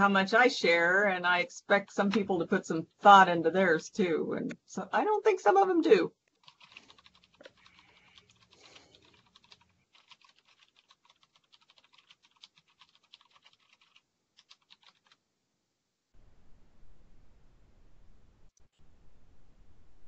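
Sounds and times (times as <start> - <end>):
faint keyboard typing: 6.3 - 15.2.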